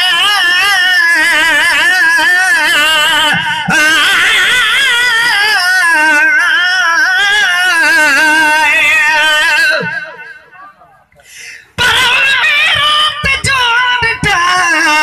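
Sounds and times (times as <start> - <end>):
man singing through microphone: 0.0 - 10.8, 11.7 - 15.0.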